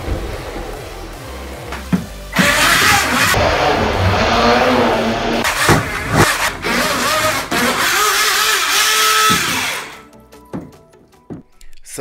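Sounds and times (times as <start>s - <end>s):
small electric motor whining: 6.2s - 10.0s.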